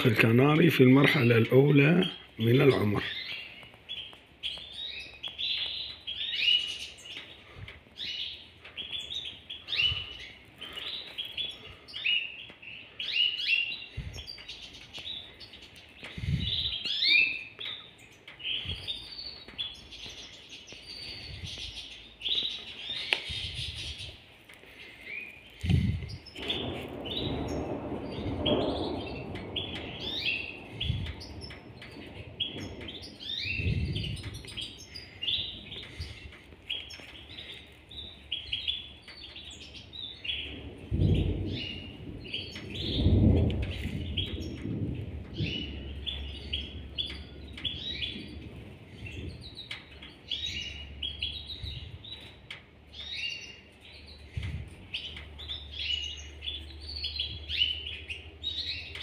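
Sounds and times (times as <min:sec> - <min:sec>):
nestlings begging chirps: 0:00.0 - 0:59.0.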